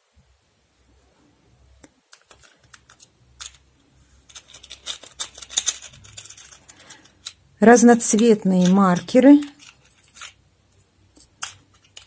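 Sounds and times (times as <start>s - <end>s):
plastic markers clattering: 2.1s - 3.6s, 4.2s - 10.4s, 11.1s - 12.0s.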